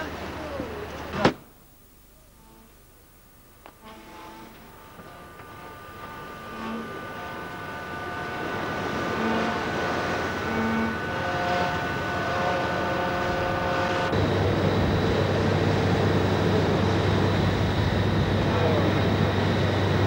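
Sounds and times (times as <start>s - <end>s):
low hum with high whine: 0.0s - 20.0s
ship machinery drone: 0.0s - 20.0s
wind and sea noise: 4.6s - 20.0s.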